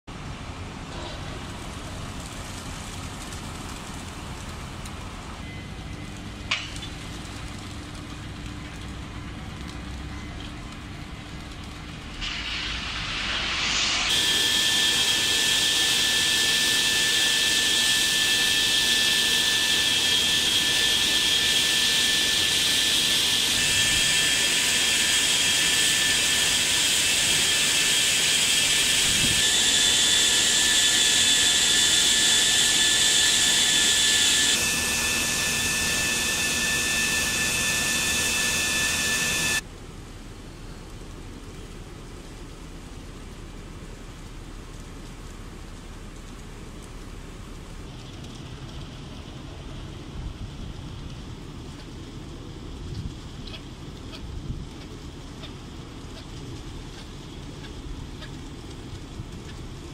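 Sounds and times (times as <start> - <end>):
high steady whine: 0.1 - 59.9
machinery hissing: 11.8 - 39.6.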